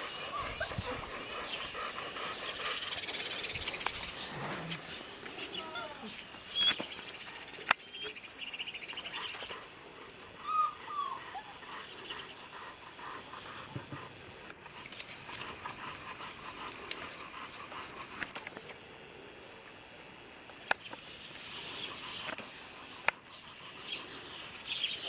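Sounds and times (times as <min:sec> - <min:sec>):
puppies whimpering: 0:00.0 - 0:02.8, 0:10.4 - 0:11.9.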